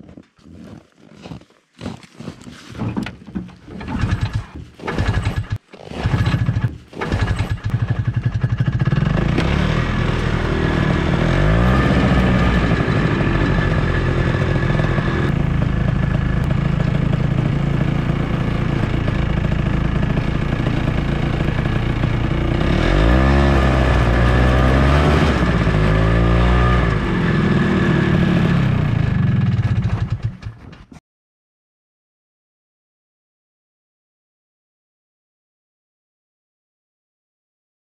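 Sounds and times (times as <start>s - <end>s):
snowmobile engine pull-start: 1.8s - 31.0s
snowmobile engine revving: 3.8s - 30.5s.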